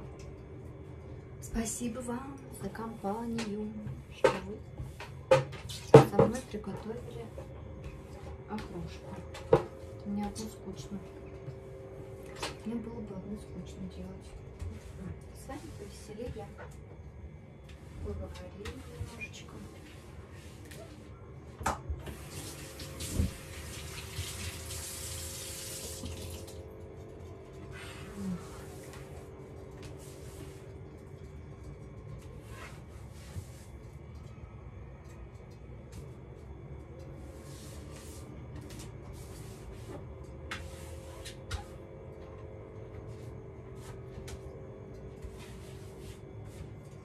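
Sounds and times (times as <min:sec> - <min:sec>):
steady low hum: 0:00.0 - 0:23.6, 0:25.2 - 0:47.0
water running into metal sink: 0:22.2 - 0:26.6.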